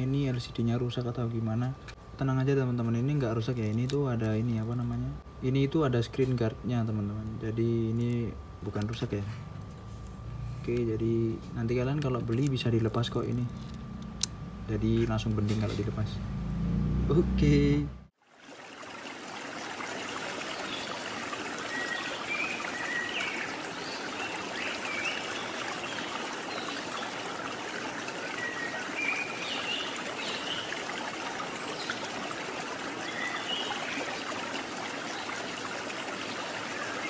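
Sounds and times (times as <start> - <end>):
flowing water: 18.1 - 37.0.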